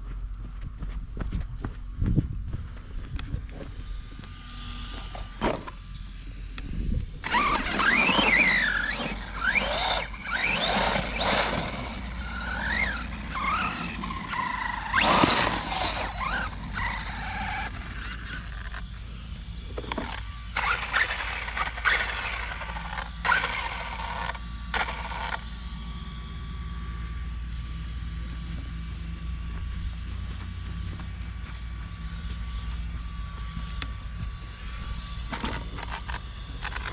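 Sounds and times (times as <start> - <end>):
rc truck electric motor whining: 3.7 - 5.8, 6.5 - 28.5, 32.0 - 36.9.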